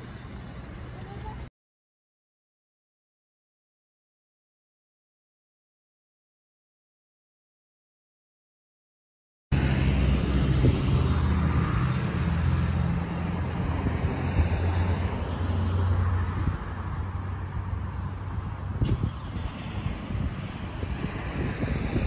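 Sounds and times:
vehicle engine humming: 0:00.0 - 0:01.5, 0:09.5 - 0:22.0.

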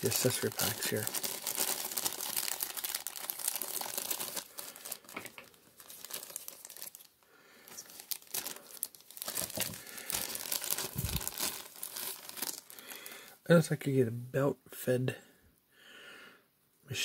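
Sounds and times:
plastic bag crinkling: 0:00.0 - 0:13.3.

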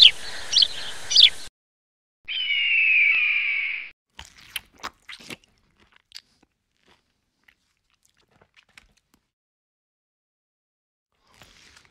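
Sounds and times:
crunchy biting and chewing: 0:04.1 - 0:09.3, 0:11.2 - 0:11.9.

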